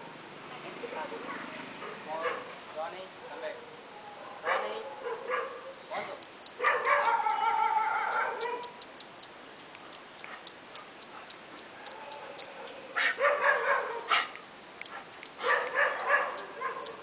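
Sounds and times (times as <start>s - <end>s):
dog yipping: 6.6s - 8.8s, 11.9s - 14.3s, 14.9s - 17.0s.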